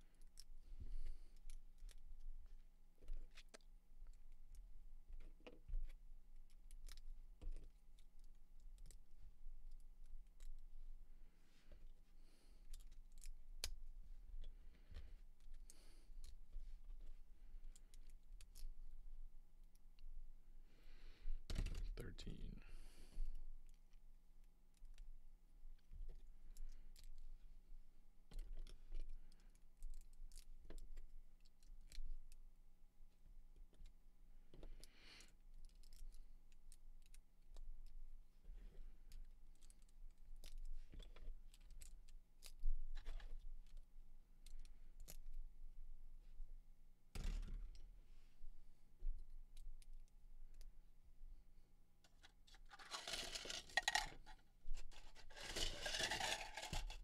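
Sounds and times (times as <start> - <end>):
plastic bricks clicking: 52.1 - 57.0
plastic bricks rattling: 52.5 - 57.0.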